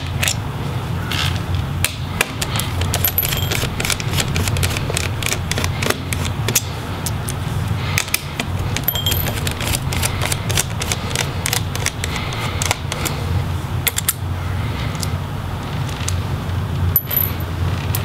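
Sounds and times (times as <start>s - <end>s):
screwdriver clicking and scraping: 2.4s - 7.2s, 8.0s - 13.2s
metallic tink: 8.9s - 9.4s.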